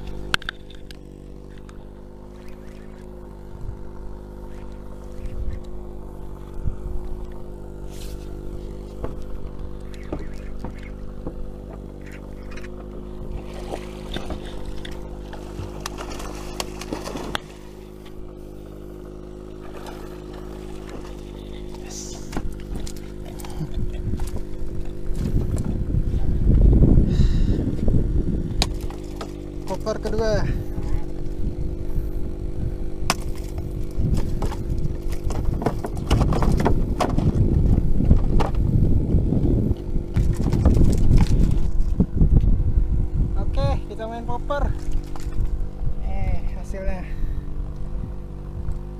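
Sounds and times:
water splashing: 0:00.0 - 0:25.7, 0:39.7 - 0:42.1, 0:44.6 - 0:45.7
boat engine humming: 0:00.0 - 0:48.9
fish thrashing on wooden deck: 0:07.8 - 0:18.0, 0:33.0 - 0:38.7.

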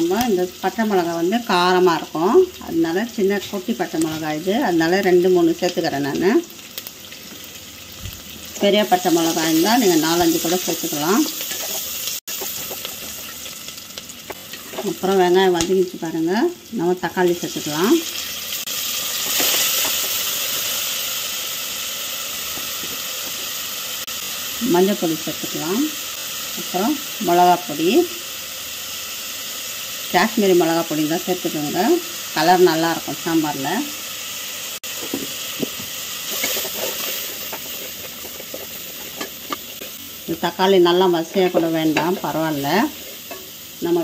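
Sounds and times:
tomatoes sizzling in hot oil: 0:00.0 - 0:44.0
spatula stirring and scraping pan: 0:09.7 - 0:13.6, 0:34.8 - 0:40.3, 0:41.0 - 0:43.7.

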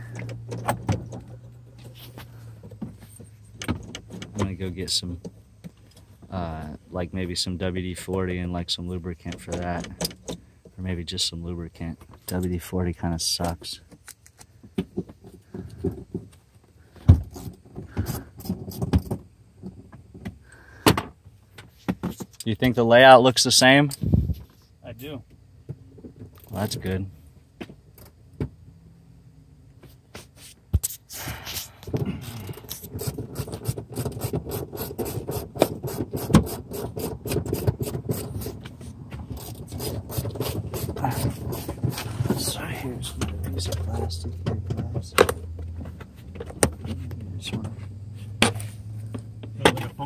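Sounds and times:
knocks and clicks in a car: 0:02.6 - 0:05.8, 0:09.2 - 0:10.8, 0:14.6 - 0:16.4, 0:33.0 - 0:47.7.

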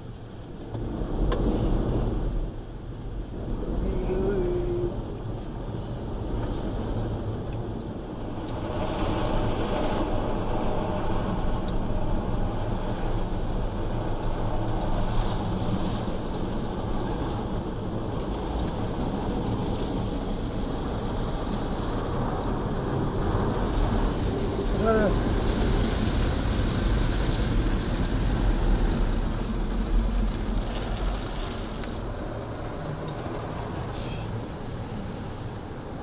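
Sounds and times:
water spray on car body: 0:08.0 - 0:36.0.

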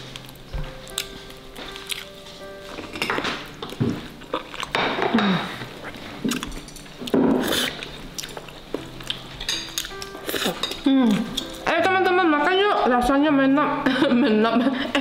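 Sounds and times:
chewing and eating: 0:00.1 - 0:11.6
plates and cutlery clinking: 0:02.6 - 0:05.7, 0:08.8 - 0:11.4.

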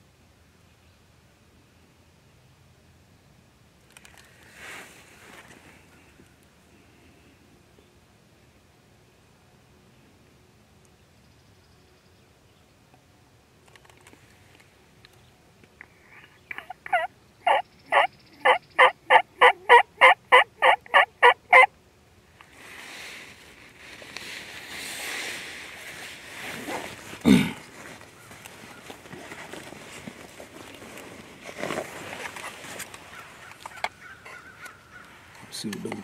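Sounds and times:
wild turkey yelps: 0:16.5 - 0:21.7, 0:33.1 - 0:35.2.

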